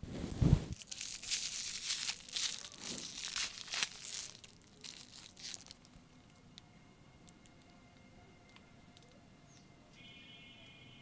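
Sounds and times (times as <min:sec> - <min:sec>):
foil wrapper crinkling: 0:00.7 - 0:06.0.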